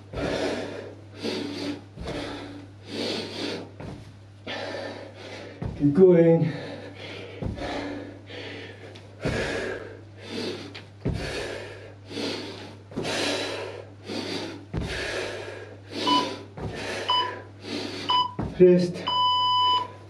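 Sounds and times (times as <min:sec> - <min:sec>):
man breathing hard: 0:00.0 - 0:18.5
feet thudding on landing: 0:01.3 - 0:02.6, 0:03.3 - 0:08.1, 0:08.8 - 0:09.8, 0:10.6 - 0:11.8, 0:12.6 - 0:17.4, 0:18.0 - 0:18.8
electronic timer beep: 0:18.1 - 0:18.4, 0:19.1 - 0:19.9.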